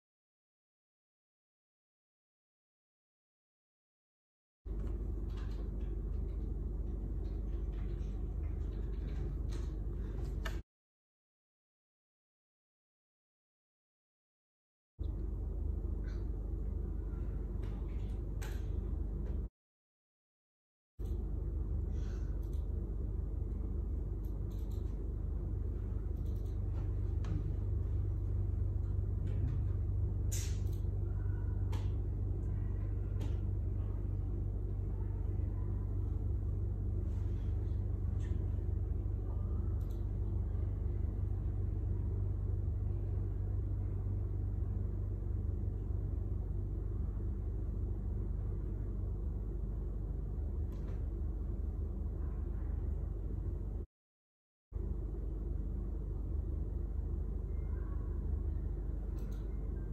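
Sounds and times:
faint clicks: 0:59.1 - 0:59.6.

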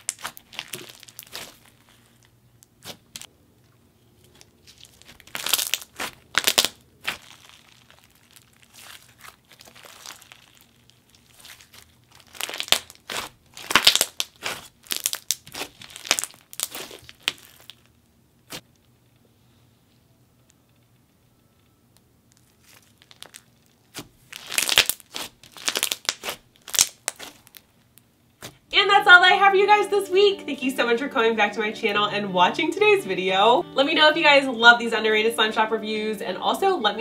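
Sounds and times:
slime popping and crackling: 0:00.0 - 0:03.3, 0:04.3 - 0:18.7, 0:22.3 - 0:28.7.

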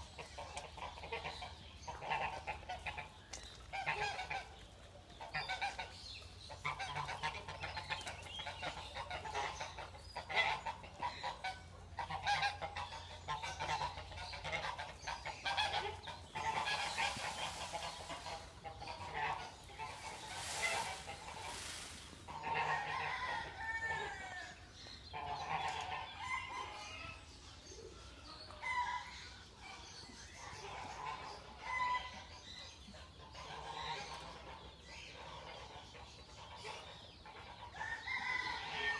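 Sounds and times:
fowl calling: 0:12.1 - 0:24.4.

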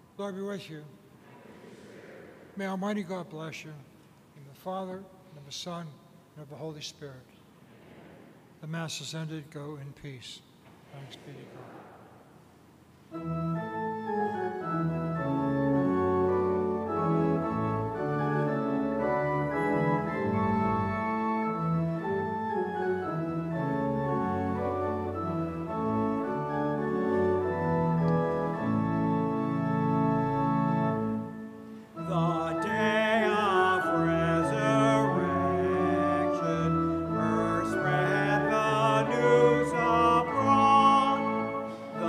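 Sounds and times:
church organ chords: 0:13.0 - 0:42.0.

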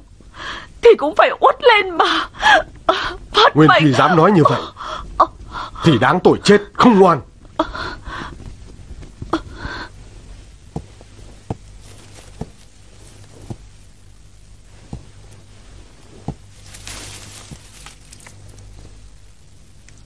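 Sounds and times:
steady low hum: 0:00.0 - 0:20.0
dry rustle: 0:10.2 - 0:19.8.

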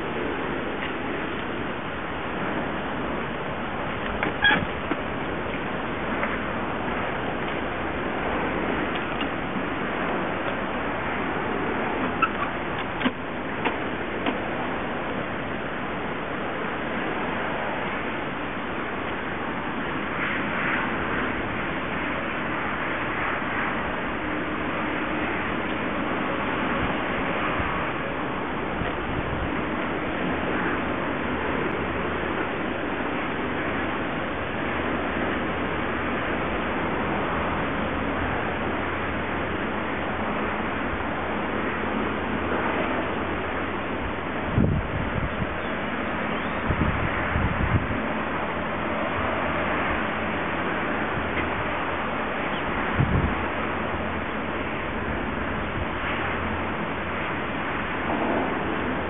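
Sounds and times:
outdoor background hiss: 0:00.0 - 0:59.0
steady rushing noise: 0:00.0 - 0:59.0.

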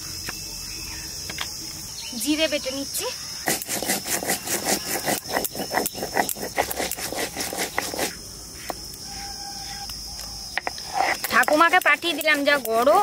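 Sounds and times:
insects droning: 0:00.0 - 0:13.0
stone roller grinding on slab: 0:03.4 - 0:08.2, 0:10.6 - 0:13.0.

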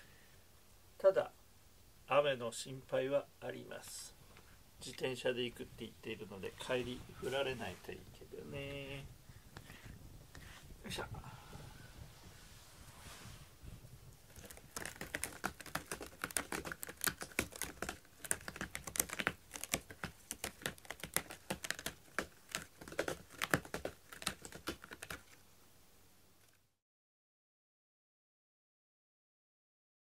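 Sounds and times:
cat scratching cardboard: 0:06.5 - 0:10.8, 0:14.2 - 0:25.4.

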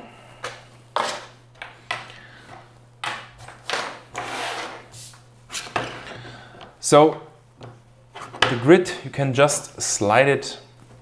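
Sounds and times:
objects sliding and rubbing: 0:03.4 - 0:06.6.

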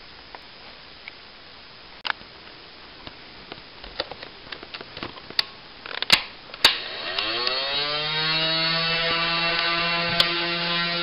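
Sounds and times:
electric motor whine: 0:06.7 - 0:11.0.

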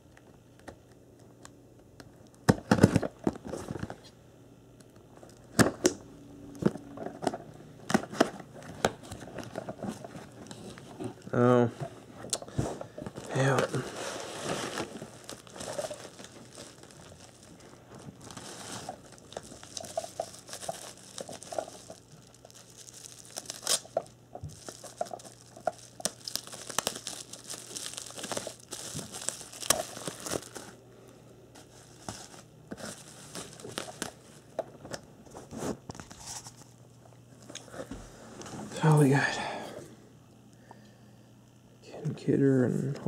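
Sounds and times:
bubble wrap crinkling: 0:06.6 - 0:30.8, 0:31.5 - 0:34.6.

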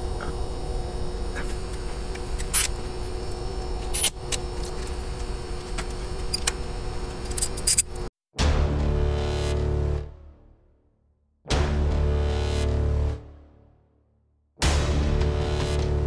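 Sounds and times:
steady low background hum: 0:00.0 - 0:08.1.

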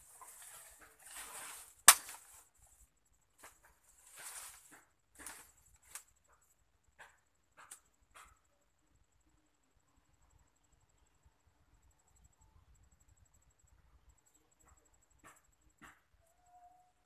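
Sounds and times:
brush and leaves rustling: 0:00.0 - 0:02.7, 0:03.4 - 0:06.1
machete chopping into branch: 0:01.8 - 0:02.4.

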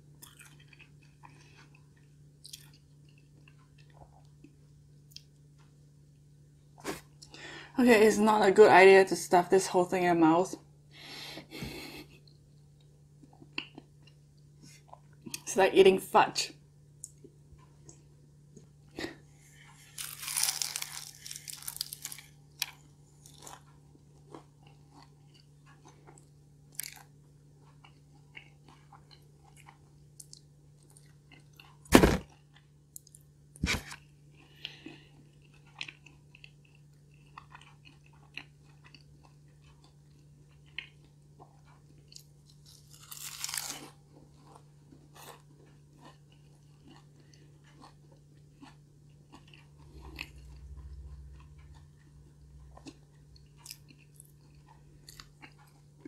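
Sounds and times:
crunchy bites and chewing: 0:00.0 - 0:04.5, 0:19.1 - 0:56.0
steady low hum: 0:00.0 - 0:56.0.

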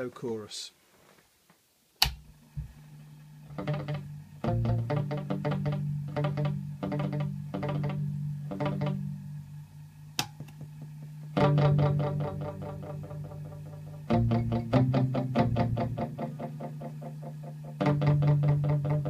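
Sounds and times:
switch click: 0:02.0 - 0:02.2
guitar notes with echo repeats: 0:03.5 - 0:09.5, 0:11.4 - 0:19.0.

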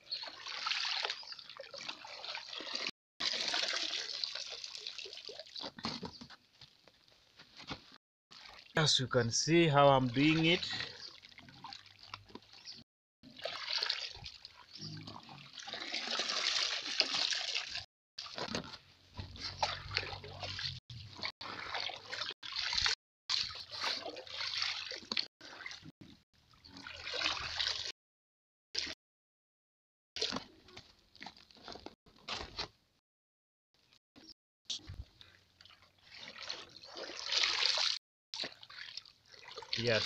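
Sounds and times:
pond water sloshing: 0:00.0 - 0:07.0, 0:07.6 - 0:27.9, 0:30.2 - 0:32.5, 0:34.8 - 0:40.0
water draining from net: 0:00.2 - 0:05.8, 0:13.2 - 0:18.3, 0:19.6 - 0:25.8, 0:26.7 - 0:27.9, 0:35.6 - 0:40.0.

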